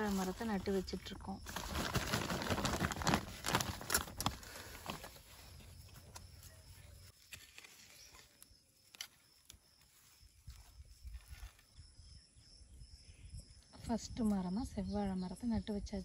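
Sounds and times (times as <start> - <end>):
soil crumbling and rustling: 0.0 - 11.8
hand spade scraping soil: 7.1 - 9.2.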